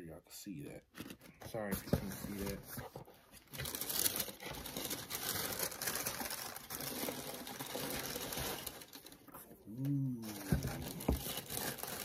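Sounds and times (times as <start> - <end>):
tissue paper crinkling: 3.4 - 9.4, 10.2 - 12.0.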